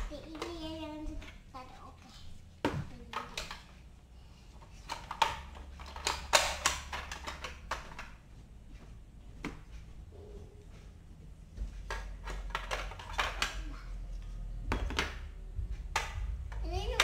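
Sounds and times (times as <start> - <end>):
plastic toy pieces clicking: 3.1 - 3.8, 4.6 - 8.1, 11.9 - 13.7.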